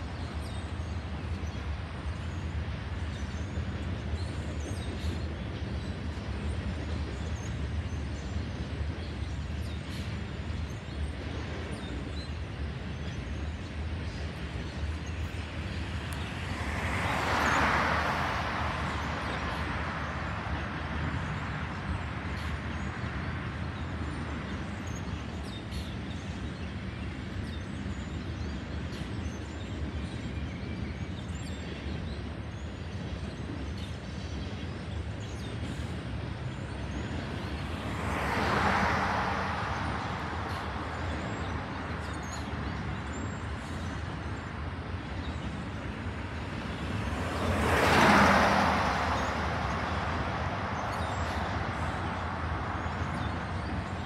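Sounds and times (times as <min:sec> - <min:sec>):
cars passing by: 0:13.4 - 0:27.6, 0:34.8 - 0:54.0.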